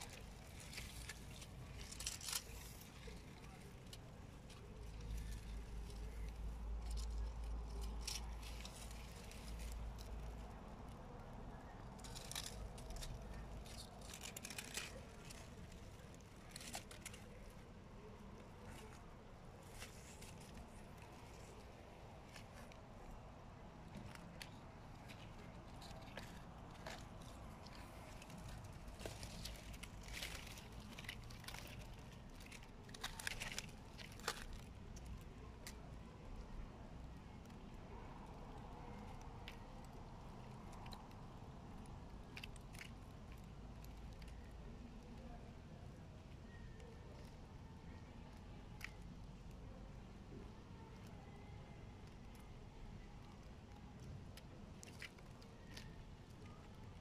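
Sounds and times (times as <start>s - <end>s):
turtle biting crackles and clicks: 0.0s - 36.4s, 52.0s - 56.8s
low steady hum: 0.0s - 57.0s
rustling of dry leaves: 0.0s - 57.0s.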